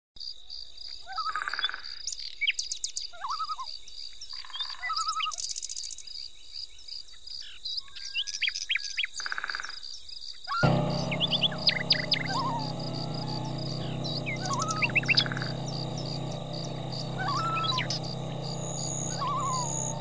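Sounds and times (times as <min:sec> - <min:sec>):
insects chirring: 0:10.6 - 0:20.0.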